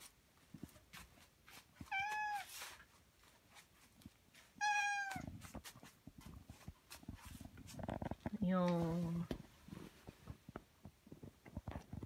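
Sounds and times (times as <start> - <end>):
cat meowing: 1.9 - 2.5, 4.6 - 5.3.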